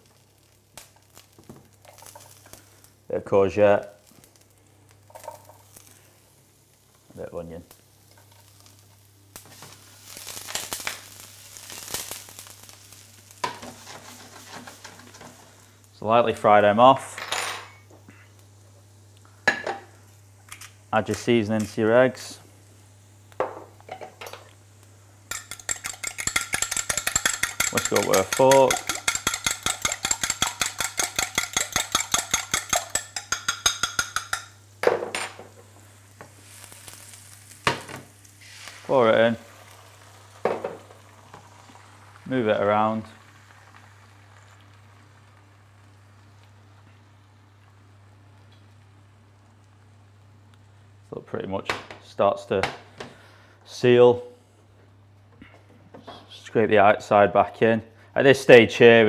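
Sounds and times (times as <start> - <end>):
vegetables sizzling in oil: 0.0 - 51.1
fork whisking eggs in glass: 25.3 - 34.5.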